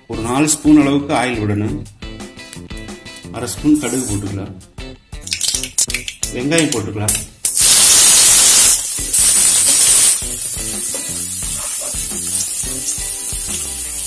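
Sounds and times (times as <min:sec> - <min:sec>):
onions sizzling in hot oil: 0:07.5 - 0:14.0.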